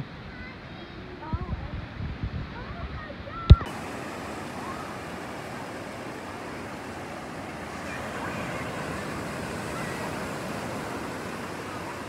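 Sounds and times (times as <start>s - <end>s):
ocean surf breaking: 3.4s - 12.0s.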